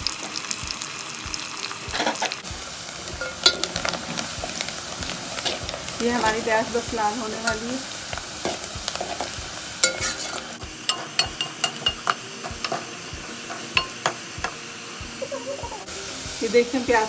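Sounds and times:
onions sizzling in hot oil: 0.0s - 17.0s
ladle scraping and knocking pot: 3.2s - 6.4s, 8.4s - 12.9s, 13.5s - 14.6s.

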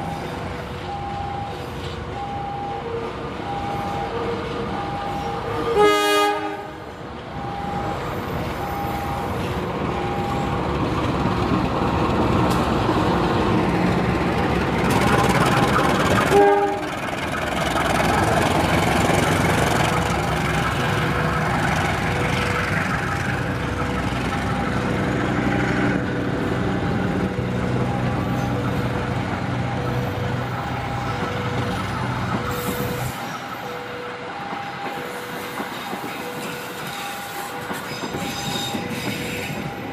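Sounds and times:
train rumbling on rails: 0.0s - 39.9s
locomotive horn blast: 5.5s - 6.9s, 16.3s - 17.0s.

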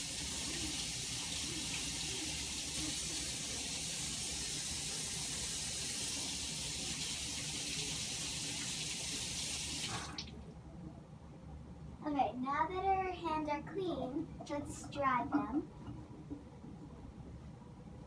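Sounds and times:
faucet running: 0.0s - 10.4s.

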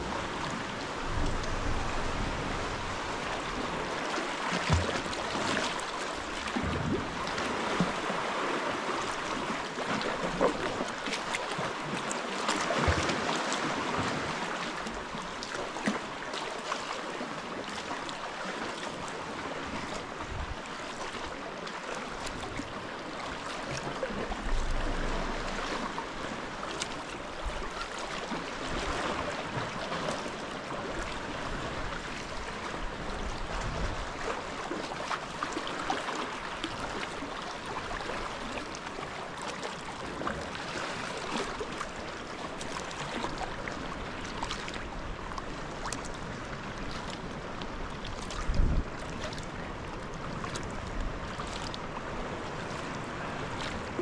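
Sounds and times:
water lapping around kayak: 0.0s - 54.0s
low rumble: 0.9s - 3.5s.

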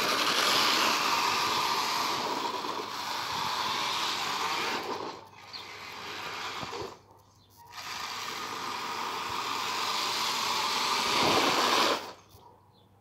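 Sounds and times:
electric motor and gears whirring: 0.0s - 12.6s.

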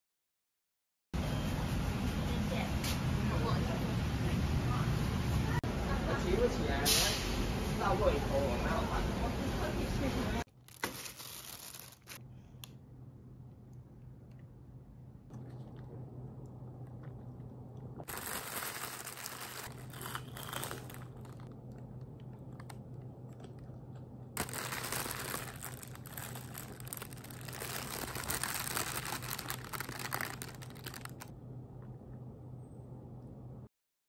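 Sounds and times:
low steady hum: 8.9s - 33.7s
plastic bag crinkling: 10.5s - 12.2s, 18.0s - 23.8s, 24.4s - 31.3s.

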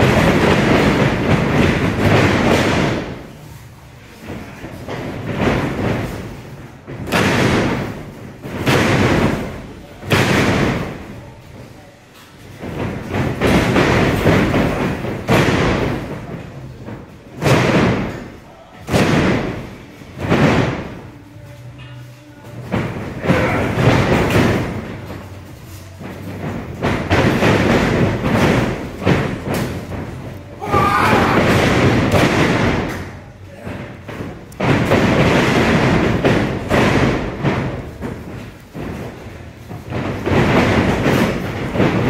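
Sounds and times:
wrestlers slamming in a ring: 0.0s - 21.1s, 22.4s - 42.0s
bodies thudding on ring canvas: 0.0s - 42.0s
person shouting: 30.6s - 31.5s.

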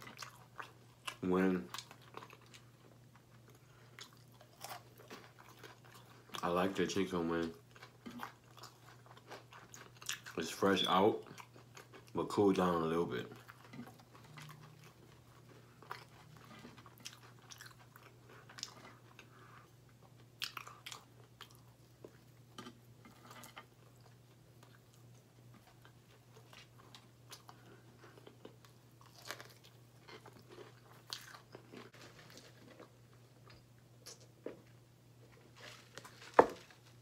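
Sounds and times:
crunchy chewing: 0.0s - 6.5s, 7.4s - 10.5s, 13.2s - 37.0s.

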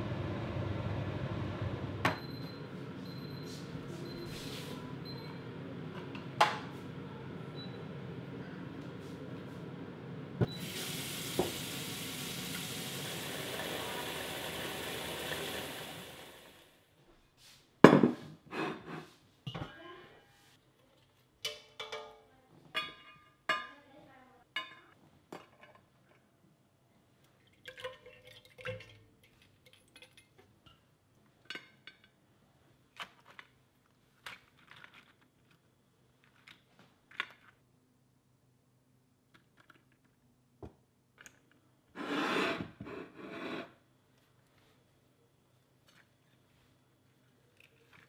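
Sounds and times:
ceramic platter scraping on stone: 42.0s - 43.8s.

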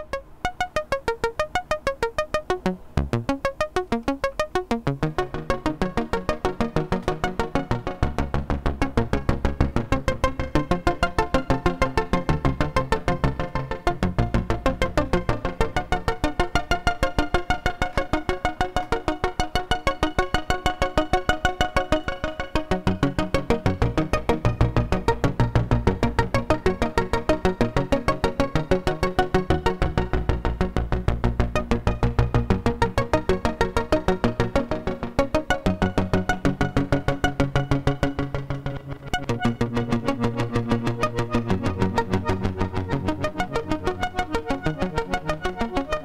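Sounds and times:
synthesizer arpeggio of plucked notes: 0.0s - 46.0s
synthesizer bass line: 0.0s - 46.0s.

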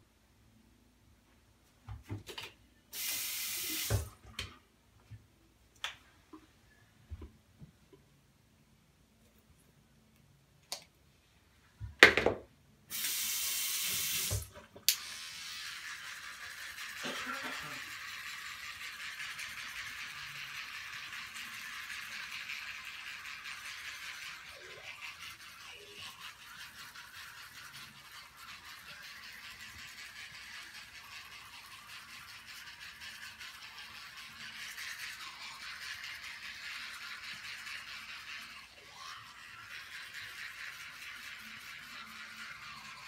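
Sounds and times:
toothbrush scrubbing teeth: 15.1s - 43.0s.

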